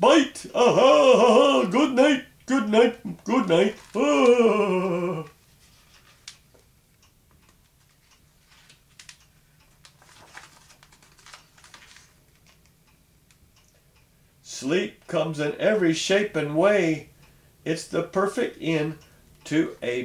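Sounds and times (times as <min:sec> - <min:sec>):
paper rustles: 0:05.5 - 0:06.4, 0:07.8 - 0:09.2, 0:09.9 - 0:12.5.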